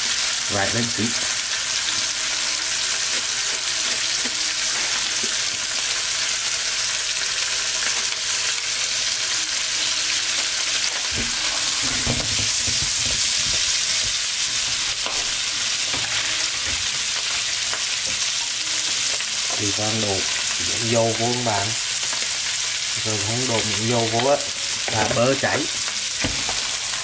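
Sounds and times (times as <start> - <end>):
steak sizzling in a frying pan: 0.0 - 27.0.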